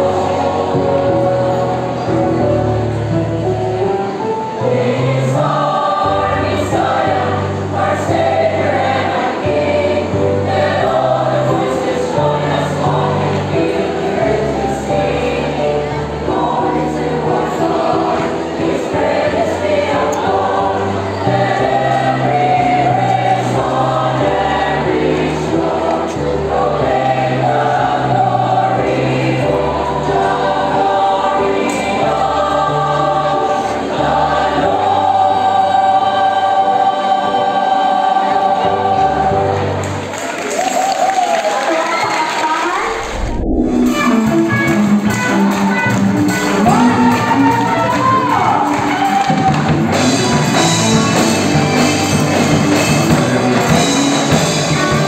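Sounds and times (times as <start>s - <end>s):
choir singing in parts: 0.0s - 40.8s, 46.4s - 55.0s
low bass notes: 43.0s - 45.1s.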